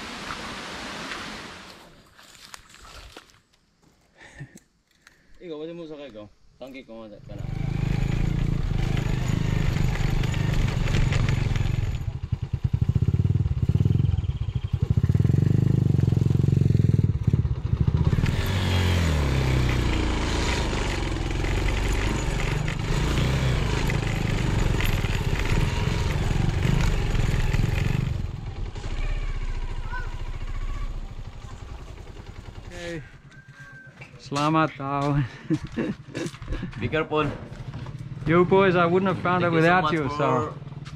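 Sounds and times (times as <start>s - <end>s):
small motorcycle engine running: 7.2s - 34.1s.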